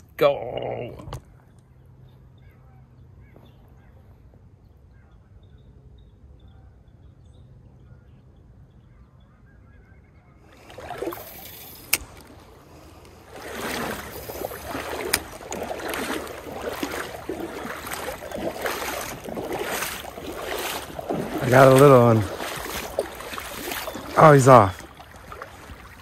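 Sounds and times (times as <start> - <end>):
faint stream: 0.0 - 4.9, 10.4 - 26.0
sharp clicks: 11.3 - 12.3.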